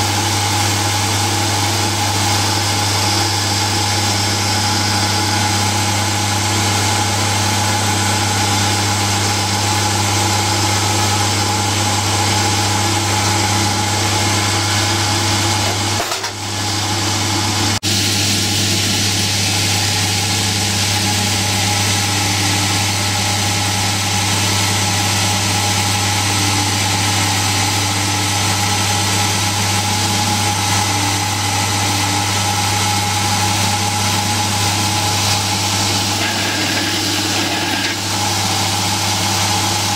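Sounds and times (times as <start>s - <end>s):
drill press humming: 0.0s - 39.9s
drill bit grinding into steel: 19.6s - 39.4s.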